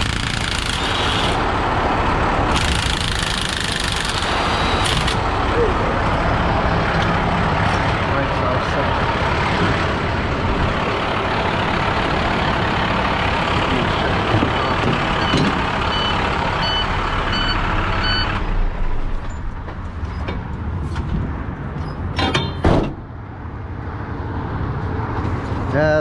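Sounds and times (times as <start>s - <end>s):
short electronic beeps: 4.4s - 5.2s.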